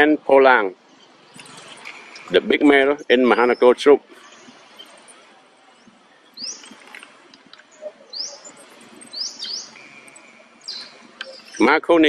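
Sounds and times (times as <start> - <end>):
faint outdoor background: 0.0 - 12.0
bird chirping: 0.7 - 12.0.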